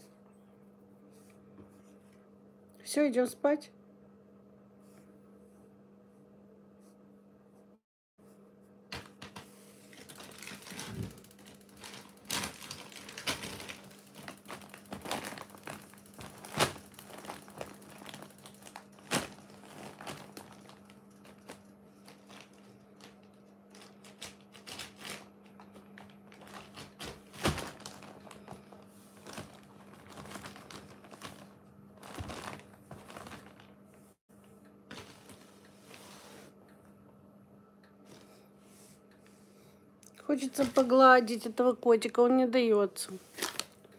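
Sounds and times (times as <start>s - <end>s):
plastic bag crinkling: 9.8s - 34.0s.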